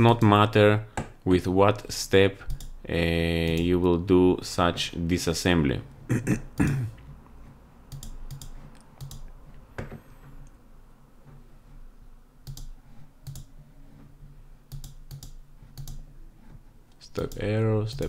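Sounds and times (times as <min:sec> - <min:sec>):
computer clicks: 0:02.4 - 0:02.8, 0:03.4 - 0:03.7, 0:07.9 - 0:10.6, 0:12.4 - 0:13.5, 0:14.7 - 0:16.0, 0:16.9 - 0:18.0.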